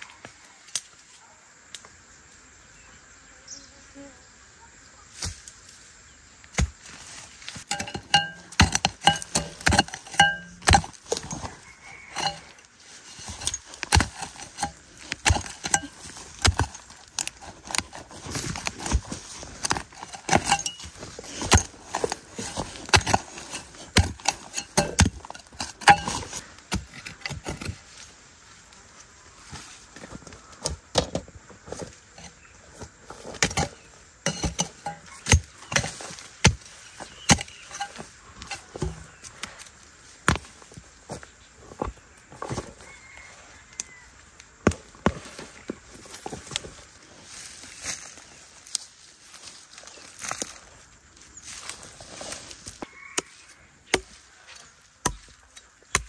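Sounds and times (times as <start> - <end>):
hand hoe chopping into soil: 6.5 - 28.0, 30.2 - 42.8, 51.5 - 56.0.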